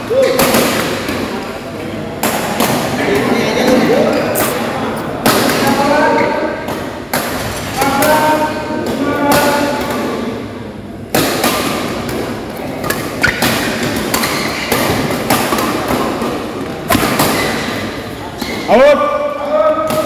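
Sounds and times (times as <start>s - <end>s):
rackets hitting shuttlecock: 0.0s - 1.4s, 6.5s - 10.2s, 11.1s - 18.7s.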